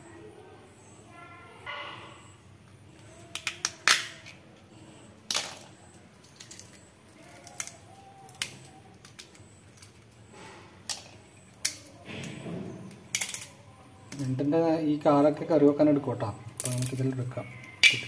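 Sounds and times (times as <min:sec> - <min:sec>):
crab shells cracking: 0:02.9 - 0:04.4, 0:05.2 - 0:10.2, 0:10.8 - 0:14.9, 0:15.7 - 0:18.0.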